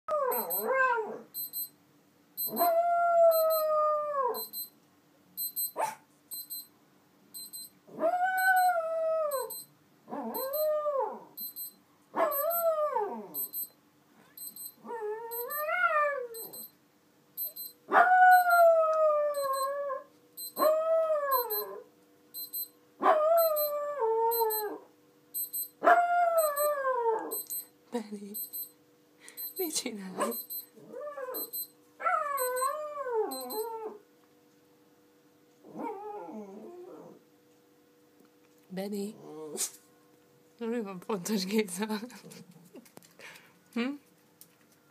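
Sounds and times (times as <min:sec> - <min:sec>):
alarm clock rapid beeps: 0:00.3 - 0:00.7, 0:01.4 - 0:01.7, 0:02.4 - 0:02.7, 0:03.3 - 0:03.7, 0:04.4 - 0:04.7, 0:05.4 - 0:06.7, 0:07.4 - 0:07.7, 0:09.3 - 0:09.7, 0:10.4 - 0:10.7, 0:11.4 - 0:12.6, 0:13.4 - 0:13.7, 0:14.4 - 0:15.6, 0:16.4 - 0:16.7, 0:17.4 - 0:18.7, 0:19.4 - 0:19.7, 0:20.4 - 0:20.7, 0:21.3 - 0:21.7, 0:22.4 - 0:22.7, 0:23.4 - 0:23.7, 0:24.3 - 0:24.7, 0:25.4 - 0:25.8, 0:26.4 - 0:27.7, 0:28.4 - 0:28.7, 0:29.4 - 0:30.7, 0:31.4 - 0:31.7, 0:32.4 - 0:32.7, 0:33.3 - 0:33.7
dog howling: 0:02.5 - 0:04.4, 0:07.9 - 0:09.5, 0:10.1 - 0:11.3, 0:14.8 - 0:16.4, 0:17.9 - 0:21.8, 0:25.8 - 0:27.4, 0:32.0 - 0:34.0, 0:35.7 - 0:37.2.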